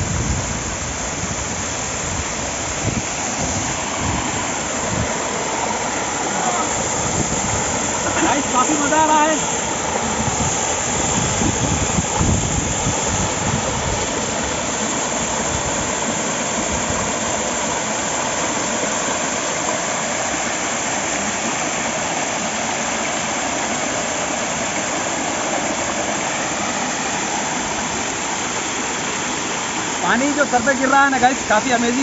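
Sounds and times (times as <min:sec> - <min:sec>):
wind buffeting microphone: 0:00.0 - 0:08.4, 0:09.1 - 0:17.4
waterfall rushing: 0:00.0 - 0:32.0.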